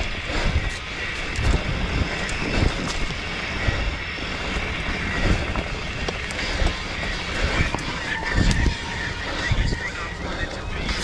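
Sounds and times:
bike thumps and rattles: 0.0 - 3.8, 4.4 - 8.7
bike tyres rolling over dirt: 0.0 - 11.0
wind noise on microphone: 0.0 - 11.0.

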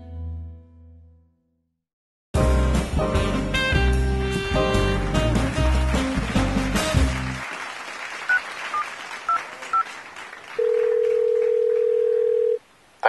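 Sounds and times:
music: 0.0 - 1.7, 2.4 - 7.5
phone ringback tone: 10.6 - 12.6.

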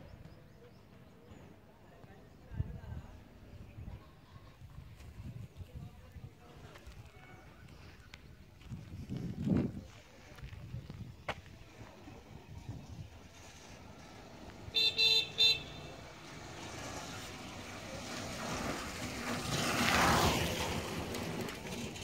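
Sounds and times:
vehicle horn beeps: 14.7 - 16.0
vehicle passing by: 15.8 - 22.0.

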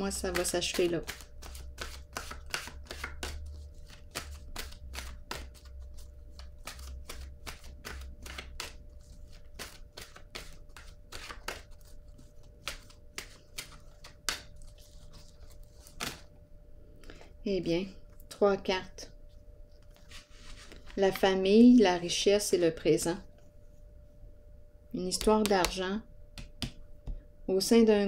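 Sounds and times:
faint low hum: 0.0 - 28.0
cards being shuffled: 0.1 - 16.3, 19.8 - 21.2.

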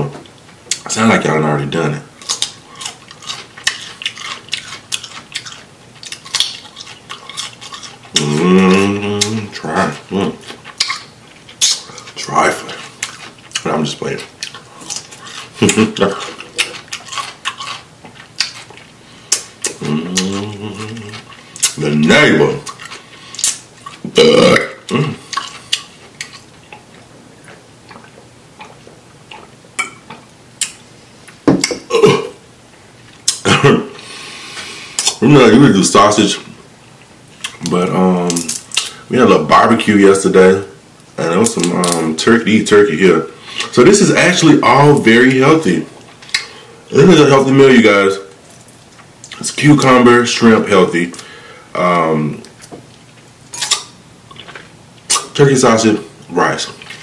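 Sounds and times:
crunchy chewing: 2.2 - 31.8, 52.3 - 55.4
person humming: 8.2 - 10.4, 19.7 - 21.2
man burping: 19.7 - 21.2, 24.0 - 25.3, 31.6 - 32.4, 33.3 - 34.0
wet mouth clicks and smacks: 30.1 - 30.8.

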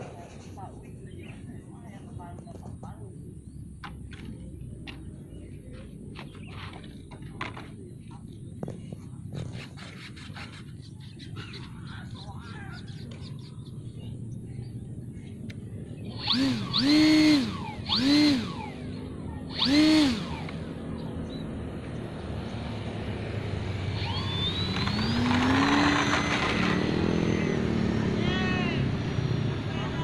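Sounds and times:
model aeroplane motor and propeller: 14.2 - 30.0.

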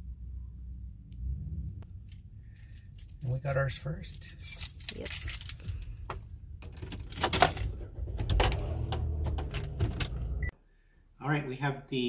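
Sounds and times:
keys jangling: 2.4 - 6.0, 6.6 - 7.8
low rumble inside car: 7.5 - 10.5.

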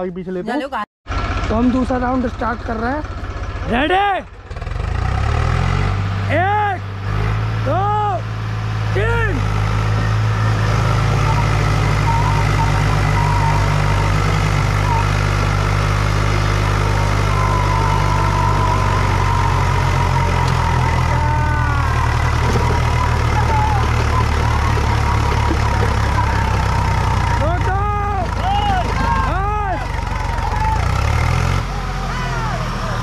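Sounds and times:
diesel engines under full load: 0.0 - 33.0
tyres spinning in loose dirt: 9.0 - 33.0.

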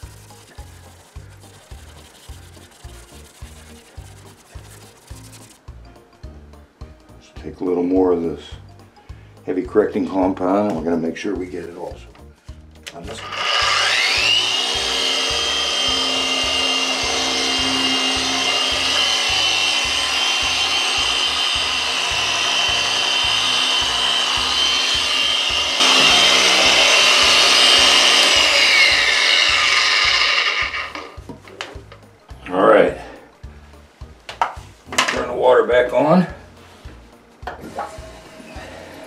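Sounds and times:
polisher motor whine: 13.2 - 31.2.

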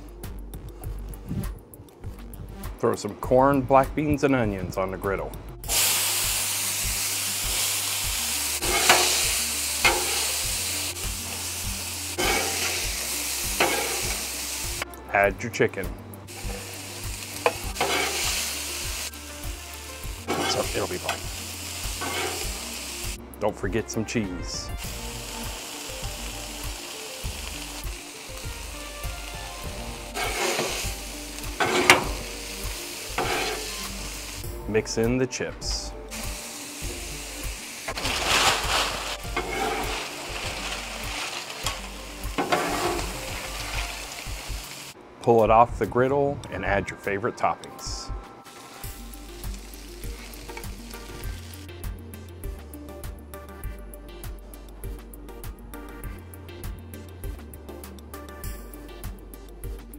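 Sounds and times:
vegetables sizzling on a griddle: 5.6 - 14.8, 16.3 - 23.2, 24.8 - 34.6, 36.1 - 45.0, 48.4 - 51.7
metal spatula scraping a griddle: 8.5 - 10.5, 12.1 - 14.3, 17.4 - 18.6, 20.2 - 21.2, 21.9 - 22.6, 30.1 - 32.2, 33.1 - 34.0, 37.9 - 43.9.

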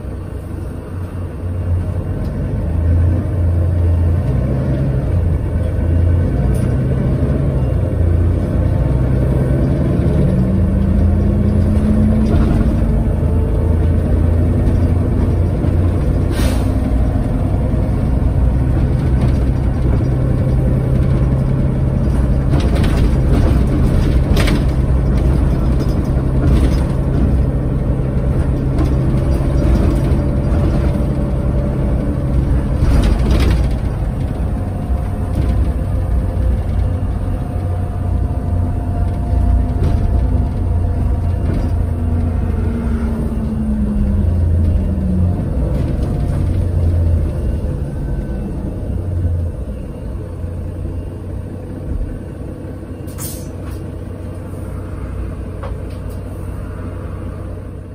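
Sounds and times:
bus engine drone: 0.0 - 57.9
bus body knocks and rattles: 10.6 - 37.3, 38.7 - 42.4, 45.4 - 47.6
gearbox whine: 16.9 - 54.1.

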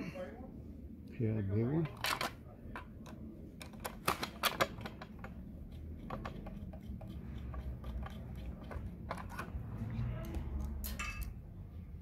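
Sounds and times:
screwdriver and screws clicking on metal: 1.9 - 11.4.

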